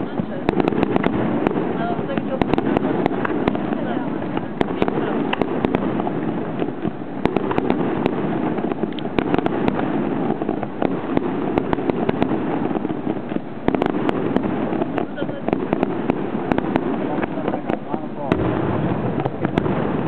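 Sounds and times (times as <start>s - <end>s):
fireworks bangs and pops: 0.0s - 20.0s.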